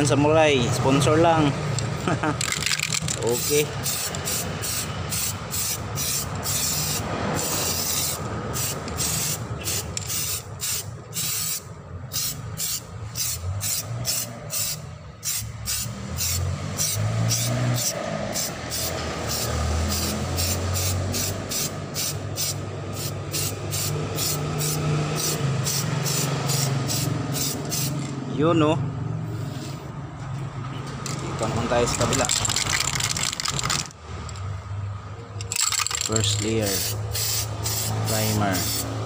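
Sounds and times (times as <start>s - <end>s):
aerosol spray can hissing: 3.4s - 28.0s, 36.7s - 39.0s.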